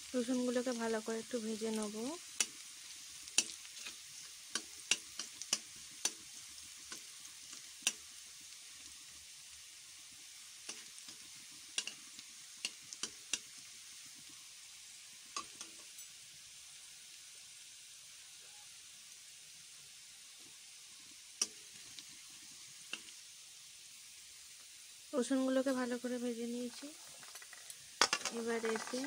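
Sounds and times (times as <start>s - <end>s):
garlic sizzling in oil: 0.0s - 29.0s
metal spatula tapping pan: 3.3s - 6.3s, 10.6s - 12.0s, 12.6s - 13.5s, 15.4s - 15.9s, 26.7s - 29.0s.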